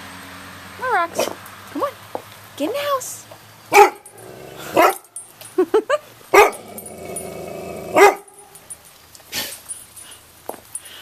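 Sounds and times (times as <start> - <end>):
dog barking: 3.7 - 4.1, 4.7 - 5.1, 6.3 - 6.6, 7.9 - 8.5.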